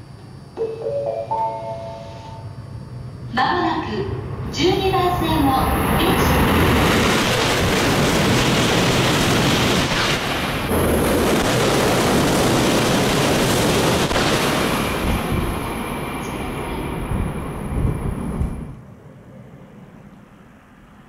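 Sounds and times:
high-speed train rushing past: 0.0 - 21.0.

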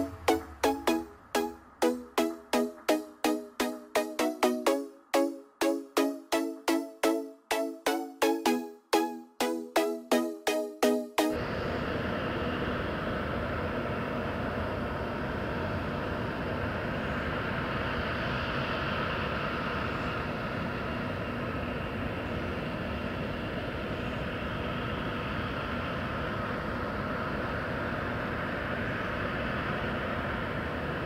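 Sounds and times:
jet airliner landing drone: 11.3 - 31.0.

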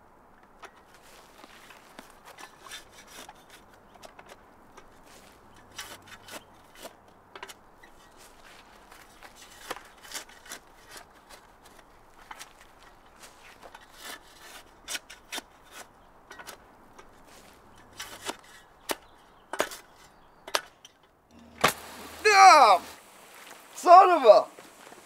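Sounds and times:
shovel digging into soil: 5.0 - 11.8, 13.2 - 16.6, 17.2 - 20.0.

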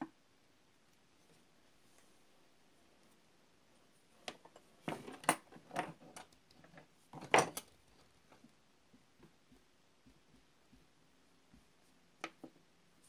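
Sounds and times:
tools clattering on a wooden workbench: 4.2 - 7.7.

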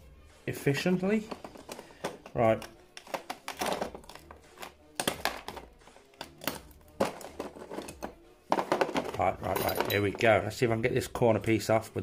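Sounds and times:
pliers crunching ceramic: 2.1 - 8.2.

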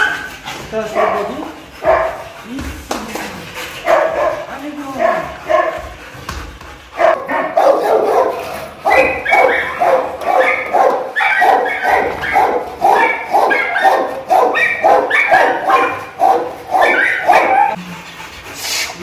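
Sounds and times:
dog barking: 0.0 - 2.3, 3.8 - 5.9, 7.0 - 17.8.

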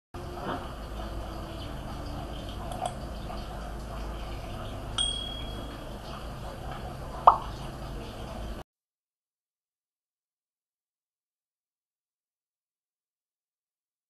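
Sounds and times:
steady low hum: 0.2 - 8.6
ringing ding: 5.0 - 5.8.

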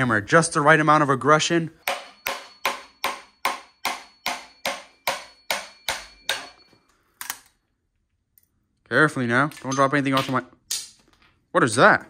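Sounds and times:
small hammer tapping metal: 1.8 - 6.8.

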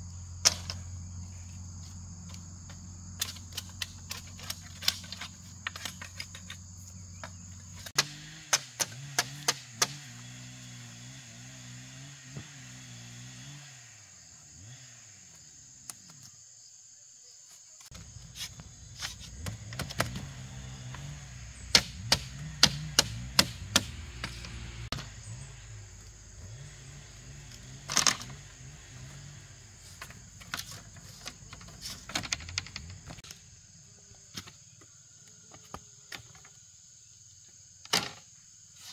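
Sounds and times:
machete striking bamboo: 0.4 - 0.8, 7.9 - 10.2, 19.0 - 25.1
bamboo slats clattering: 0.4 - 0.9, 3.2 - 10.2, 18.3 - 21.1, 21.7 - 25.2, 27.5 - 29.2, 29.8 - 33.3, 37.8 - 38.3.

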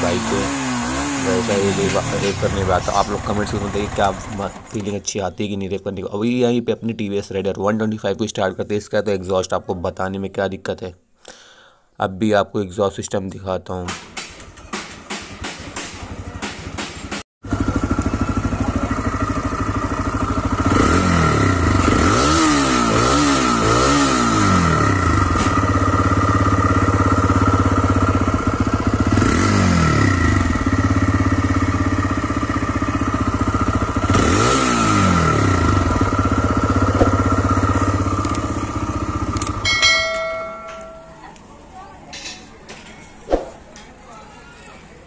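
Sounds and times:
motorcycle engine idling and revving: 0.0 - 5.6, 14.2 - 41.2.

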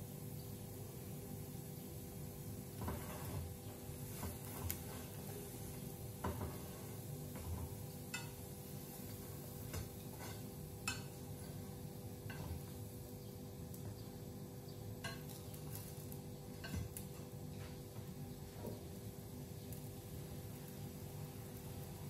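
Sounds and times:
utensil clinking on frying pan: 7.3 - 8.6, 9.6 - 11.6, 15.0 - 15.9.

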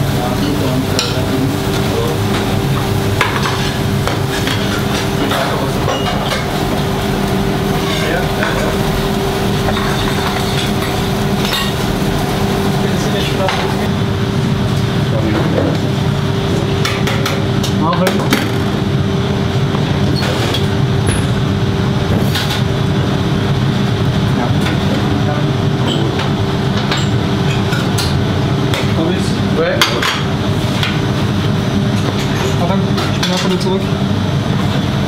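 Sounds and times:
machine hum: 0.0 - 35.0
utensils clinking on steel counter: 0.2 - 6.7, 9.6 - 11.8, 25.8 - 29.1, 31.9 - 33.8.

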